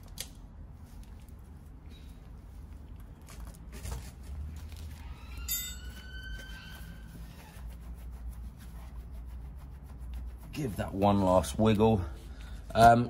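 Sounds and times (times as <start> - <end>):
coil spring ringing: 5.5 - 6.0.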